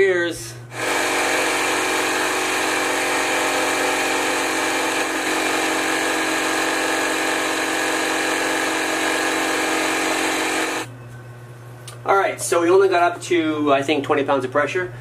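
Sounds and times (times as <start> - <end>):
air compressor running: 0.7 - 10.9.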